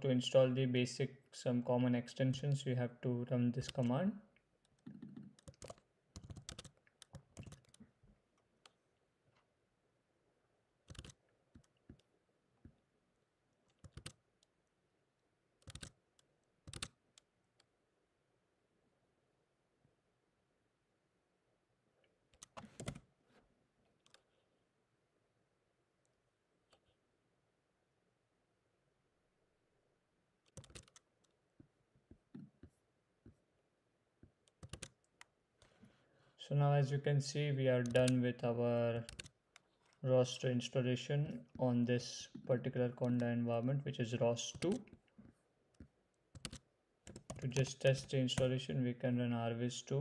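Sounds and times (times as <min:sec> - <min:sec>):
keyboard keys clicking: 0:04.9 - 0:07.8, 0:10.9 - 0:12.1, 0:13.7 - 0:14.2, 0:15.6 - 0:16.0, 0:16.7 - 0:17.2, 0:22.4 - 0:23.0, 0:30.5 - 0:31.0, 0:34.5 - 0:35.3, 0:39.1 - 0:39.3, 0:46.4 - 0:48.5.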